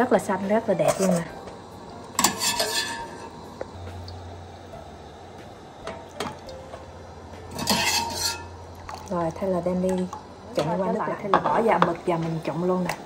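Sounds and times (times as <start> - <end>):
low steady hum: 0.0 - 13.0
utensil clinking against pot: 2.2 - 3.3, 7.5 - 9.1.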